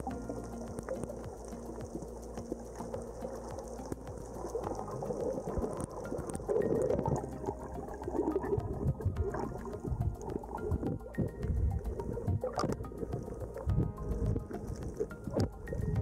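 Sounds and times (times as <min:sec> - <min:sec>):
fine crackle of clicks: 0:00.0 - 0:16.0
muffled underwater bubbling: 0:00.0 - 0:16.0.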